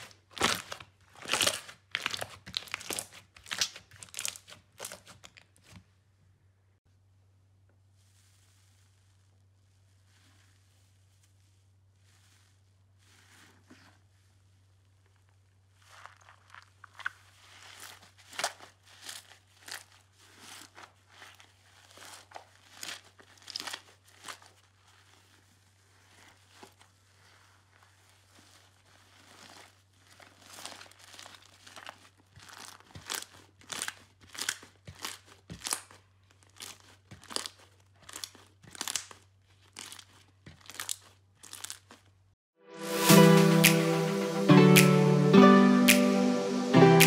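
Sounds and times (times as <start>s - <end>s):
slime squelching and popping: 0.0s - 5.8s, 15.8s - 42.1s.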